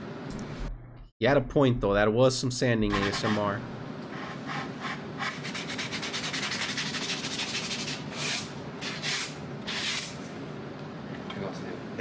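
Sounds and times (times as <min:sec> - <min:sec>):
hand sanding wooden board: 0:02.9 - 0:03.5, 0:04.2 - 0:10.2.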